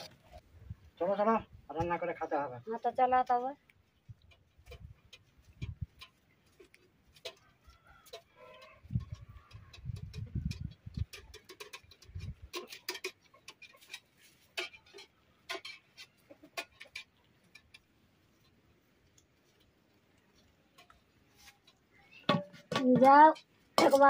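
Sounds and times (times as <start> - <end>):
metal utensils clicking: 8.1 - 17.9, 20.7 - 24.0.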